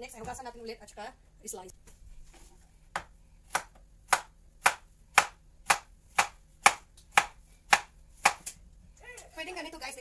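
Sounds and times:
knife chopping on wooden board: 2.9s - 8.6s.

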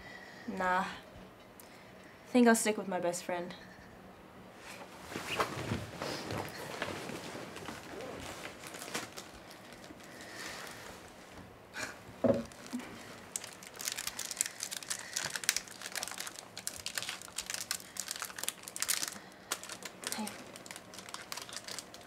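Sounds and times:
packaging wrappers crinkling: 6.2s - 11.2s, 12.4s - 22.0s.

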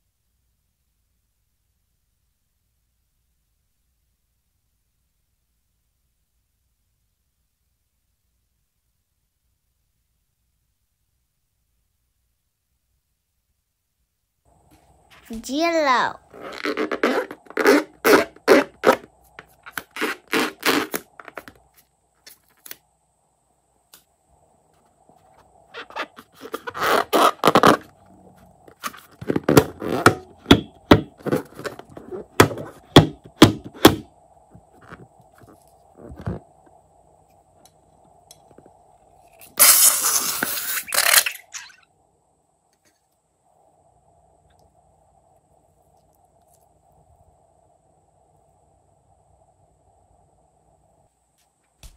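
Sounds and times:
rubber balloon squeaking: 16.2s - 21.5s, 25.7s - 28.0s, 28.7s - 33.2s, 39.6s - 41.8s.

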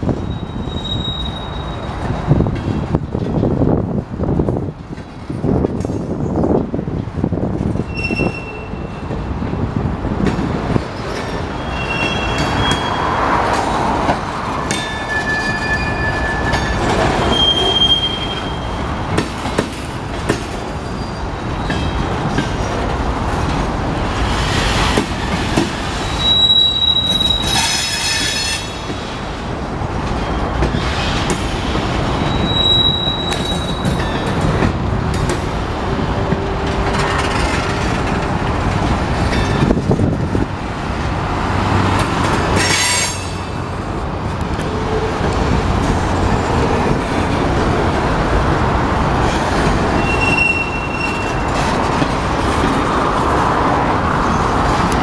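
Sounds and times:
train clanks: 0.0s - 55.0s
train wheels rumbling on rail: 0.0s - 55.0s
wheel squeals: 0.2s - 2.1s, 7.8s - 9.0s, 11.0s - 13.2s, 14.7s - 18.8s, 20.8s - 22.1s, 25.9s - 29.0s, 32.1s - 34.5s, 50.0s - 51.7s.

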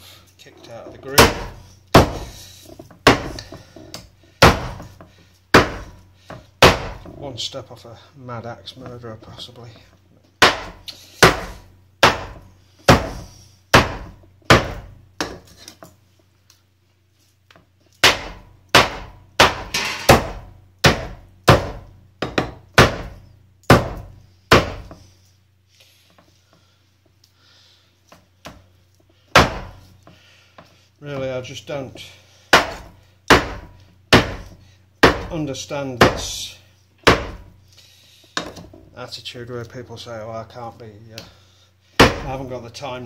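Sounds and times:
cleaver chopping meat on wood block: 1.1s - 2.3s, 3.0s - 3.6s, 4.4s - 6.0s, 6.6s - 7.1s, 10.4s - 15.4s, 18.0s - 25.0s, 29.3s - 29.8s, 32.5s - 35.4s, 36.0s - 36.3s, 37.0s - 37.5s, 42.0s - 42.4s.

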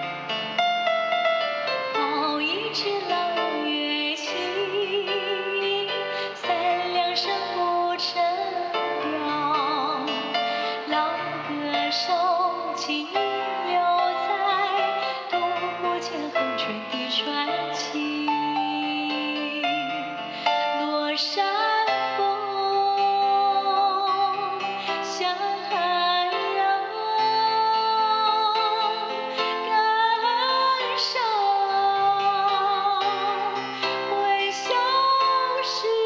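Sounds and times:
woman singing with vibrato: 1.9s - 36.0s.

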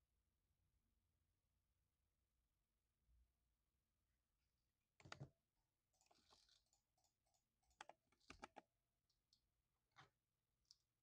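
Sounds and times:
mechanical keyboard typing: 7.7s - 8.7s.

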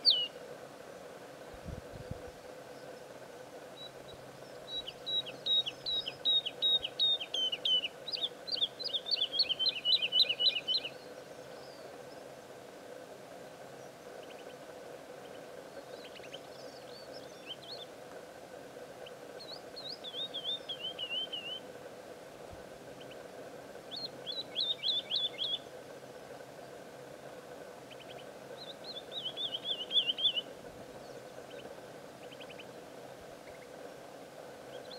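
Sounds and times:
woodlark singing: 0.0s - 0.4s, 3.8s - 11.9s, 19.0s - 21.6s, 23.9s - 25.7s, 27.9s - 31.6s
steady low hum: 0.0s - 34.9s.

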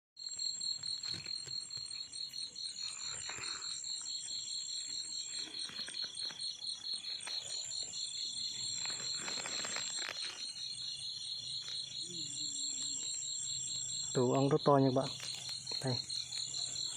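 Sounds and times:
higher insect trill: 0.2s - 16.9s
pulsing insect chirps: 0.2s - 16.9s
rustling leaves and twigs: 4.6s - 13.2s, 14.8s - 16.9s.

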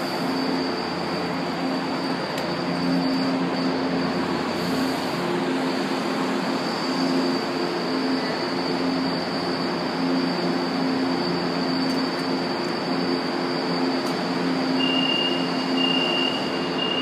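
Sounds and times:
subway train rumbling: 0.0s - 17.0s
train high whine: 0.0s - 17.0s
train humming tones: 0.0s - 17.0s.

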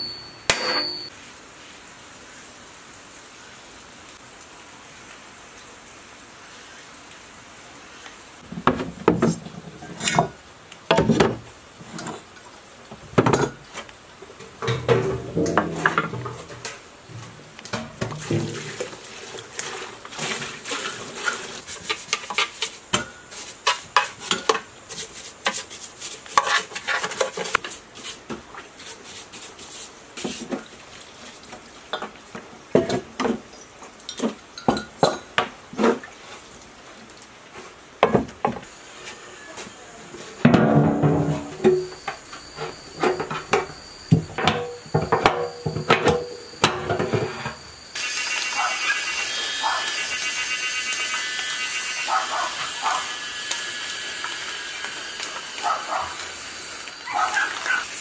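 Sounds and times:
water splashing in tub: 17.9s - 21.6s
brush scrubbing metal: 18.1s - 30.5s.

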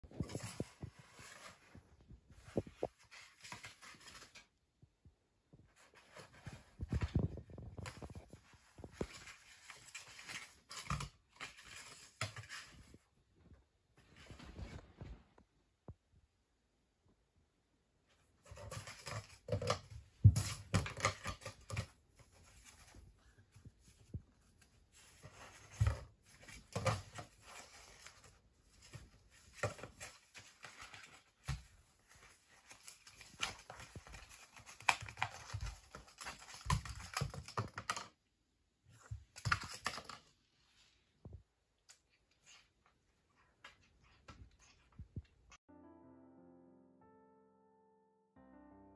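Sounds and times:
cat playing with cardboard tube: 0.0s - 4.5s, 5.7s - 13.0s, 18.4s - 38.2s.

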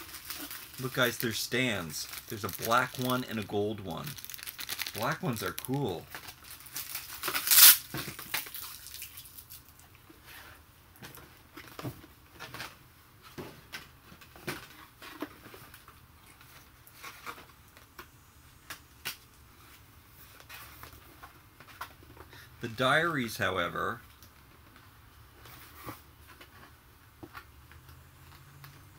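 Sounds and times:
toy packaging clicks and rustles: 0.0s - 9.8s.

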